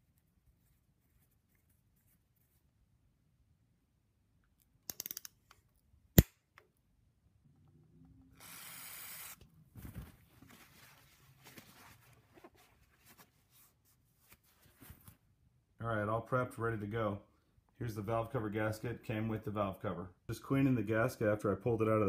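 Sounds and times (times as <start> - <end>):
torque wrench clicking: 4.9 - 5.4.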